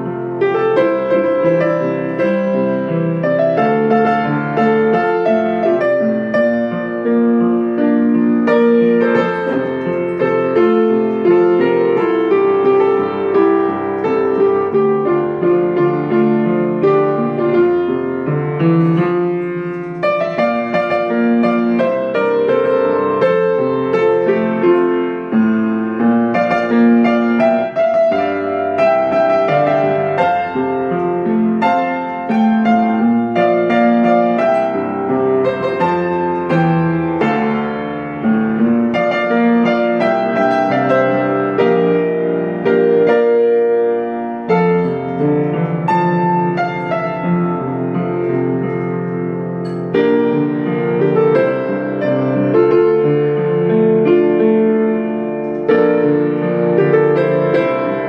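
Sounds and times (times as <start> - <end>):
solo piano pop song: 0.0 - 58.0.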